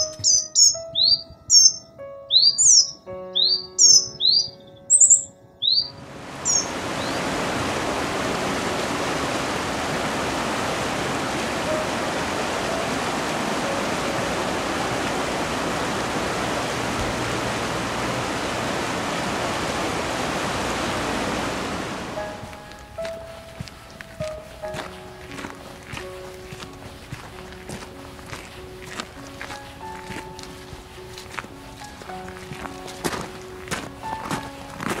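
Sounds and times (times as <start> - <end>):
bird-like chirps: 0.0 - 7.2
river water rushing: 5.1 - 35.0.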